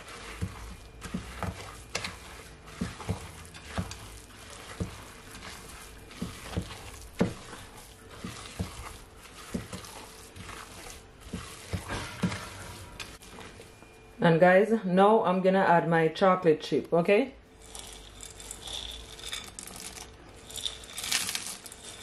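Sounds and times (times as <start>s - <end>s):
spoon stirring thick dough: 0.0s - 13.8s, 17.5s - 22.0s.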